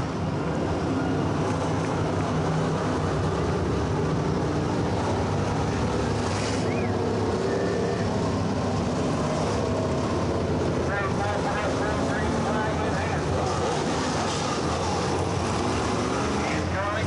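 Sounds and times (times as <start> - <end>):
race car engines droning: 0.0 - 17.0.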